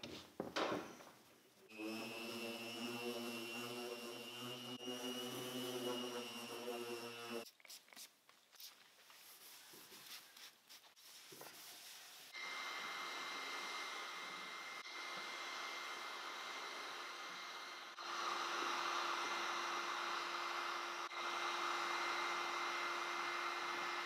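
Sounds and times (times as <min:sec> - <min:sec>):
power tool whining: 0:01.7 - 0:07.4, 0:12.4 - 0:24.0.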